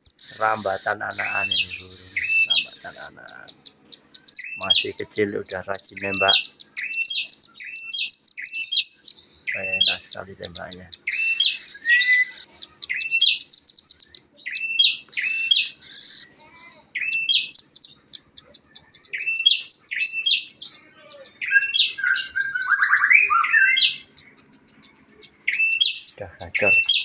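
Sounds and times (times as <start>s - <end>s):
bird rattling trills: 0.0s - 16.3s, 17.0s - 27.0s
bird chipping calls: 0.0s - 27.0s.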